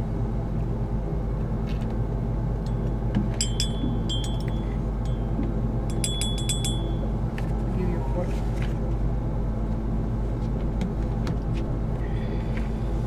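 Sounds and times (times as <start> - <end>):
low hum: 0.0 - 13.0
spoon clinking against mug: 5.9 - 7.0.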